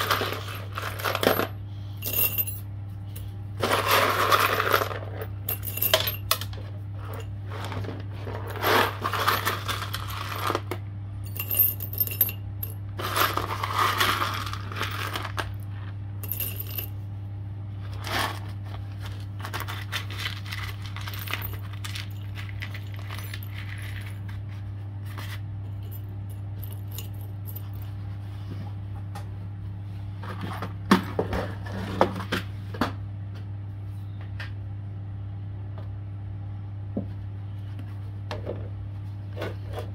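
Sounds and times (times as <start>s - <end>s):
scrap metal clinking: 0.0s - 10.7s, 16.2s - 17.0s
steady low hum: 0.0s - 39.9s.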